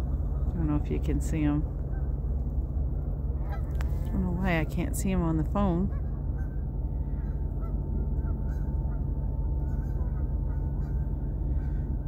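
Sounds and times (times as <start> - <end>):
geese honking: 0.0 - 2.2, 3.4 - 3.8, 5.6 - 12.0
steady low rumble: 0.0 - 12.0.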